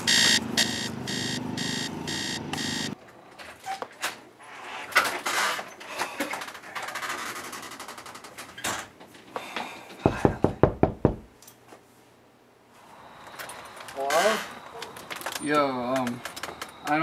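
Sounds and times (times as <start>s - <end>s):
fist pounding on wooden door: 10.0s - 11.3s.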